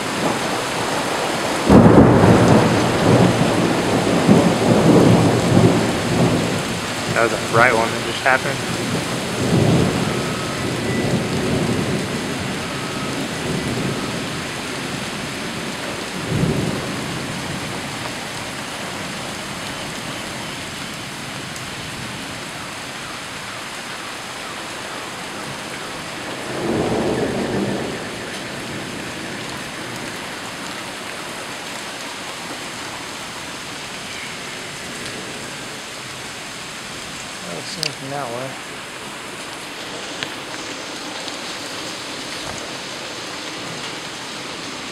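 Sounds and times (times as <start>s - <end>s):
thunder rumbling: 0.0s - 20.1s, 25.4s - 31.0s
heavy rain falling: 0.0s - 44.9s.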